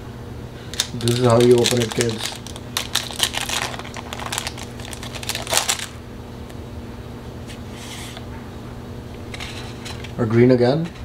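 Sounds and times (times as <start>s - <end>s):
low steady hum: 0.0s - 11.0s
foil wrapper crinkling: 0.7s - 6.0s.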